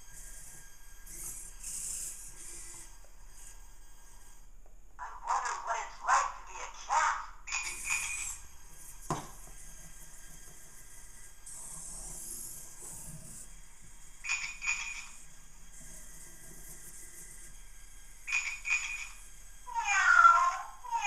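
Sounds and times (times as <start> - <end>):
servo motors whirring: 0.2 - 4.5, 7.5 - 19.3.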